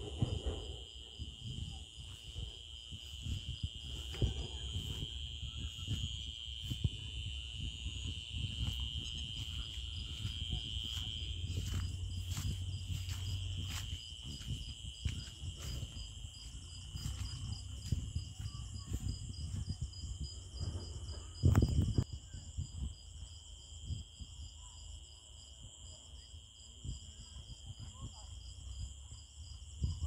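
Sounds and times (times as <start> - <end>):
low rumbling thuds: 0.0 - 22.0
insects chirping: 0.0 - 30.0.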